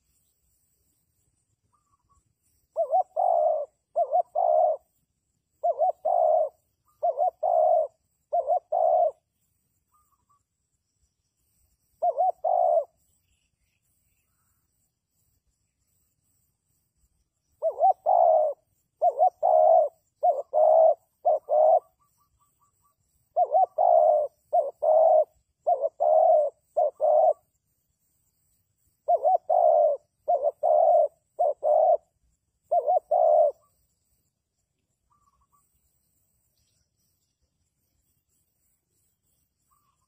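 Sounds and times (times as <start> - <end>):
dove cooing: 2.7 - 5.0, 5.6 - 9.3, 12.0 - 13.0, 17.6 - 27.6, 29.0 - 33.8.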